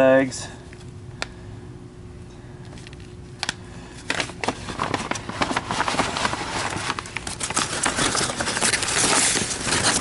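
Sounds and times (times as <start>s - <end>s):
paper bags rustling and crinkling: 4.0s - 10.0s.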